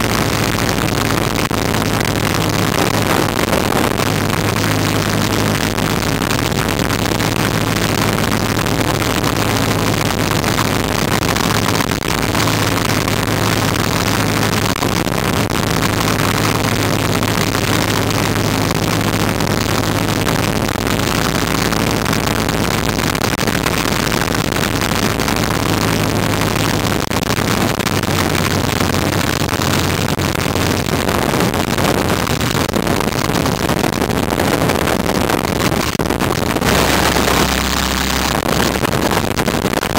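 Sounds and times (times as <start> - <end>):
rushing air: 35.8 - 39.1.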